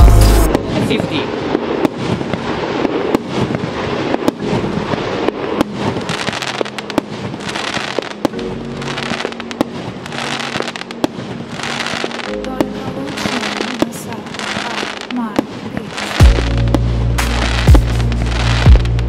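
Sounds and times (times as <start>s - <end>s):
firework hiss: 1.4s - 12.3s.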